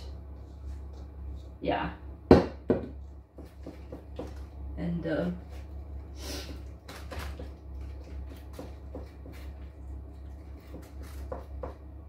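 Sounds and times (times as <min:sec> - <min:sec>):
steady low hum: 0:00.0 - 0:12.0
spatula scraping and tapping: 0:02.9 - 0:04.5, 0:06.4 - 0:11.9.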